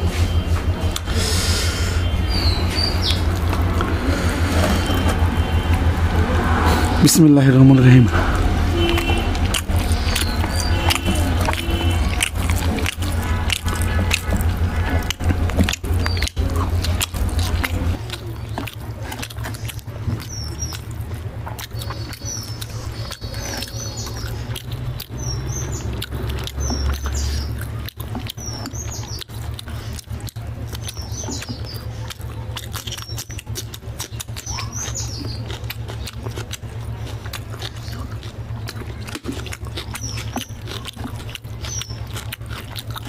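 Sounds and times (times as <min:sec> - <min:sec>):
mouth chewing: 0:00.0 - 0:43.0
steady low hum: 0:00.0 - 0:43.0.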